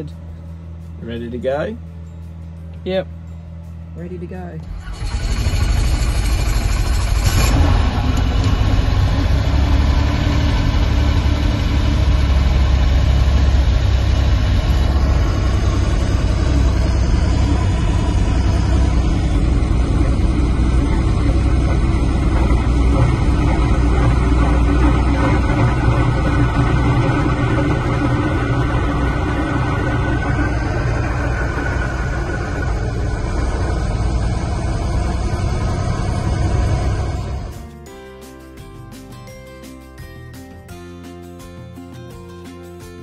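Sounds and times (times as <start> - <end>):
helicopter engine and rotor running: 3.5 - 37.8.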